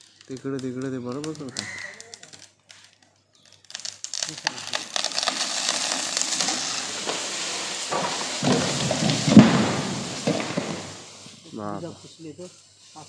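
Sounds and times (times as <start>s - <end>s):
palm tree crackling and swishing: 0.0s - 13.0s
heavy crash of tree: 3.8s - 11.4s.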